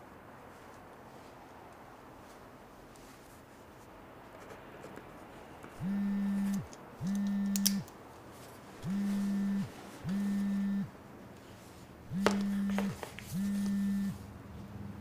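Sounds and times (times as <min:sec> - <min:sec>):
low steady hum: 0:00.0 - 0:15.0
phone vibrating buzzes: 0:05.8 - 0:07.8, 0:08.8 - 0:10.9, 0:12.1 - 0:14.2.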